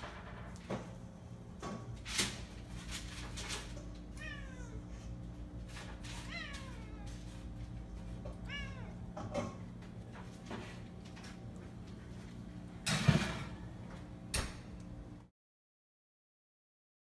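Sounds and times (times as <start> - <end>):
cat meowing: 4.1 - 5.0, 6.1 - 7.3, 8.3 - 9.1.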